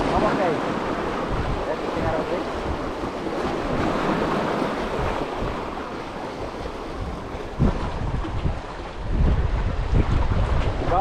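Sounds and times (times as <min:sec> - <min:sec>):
waves washing against rocks: 0:00.0 - 0:11.0
wind gusting on microphone: 0:00.0 - 0:11.0.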